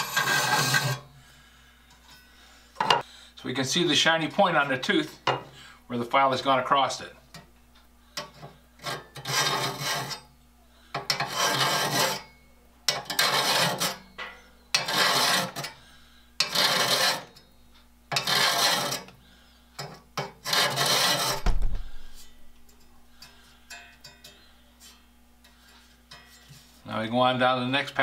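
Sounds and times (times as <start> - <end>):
file rasping on saw teeth: 0.0 - 1.0, 8.8 - 10.2, 11.1 - 12.3, 12.9 - 14.0, 14.8 - 15.8, 16.4 - 17.4, 18.1 - 19.1, 20.4 - 21.4
low knock: 21.4 - 22.0.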